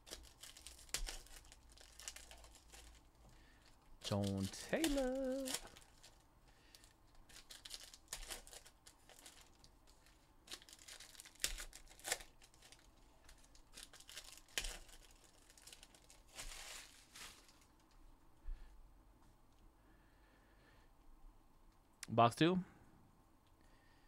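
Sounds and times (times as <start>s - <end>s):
foil wrappers crinkling and tearing: 0.0s - 18.0s
cards being handled: 4.0s - 6.2s, 7.2s - 17.7s.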